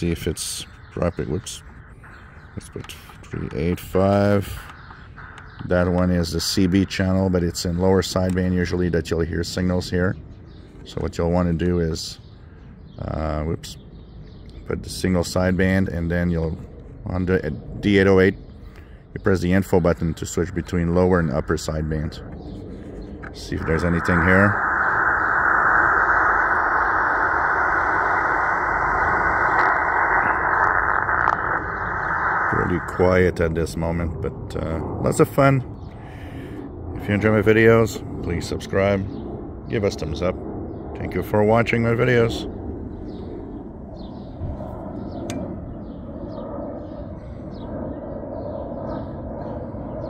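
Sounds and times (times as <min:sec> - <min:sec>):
muffled radio static hiss: 0:00.0 - 0:12.2, 0:14.7 - 0:39.1, 0:41.0 - 0:42.8
small birds chirping: 0:00.0 - 0:50.0.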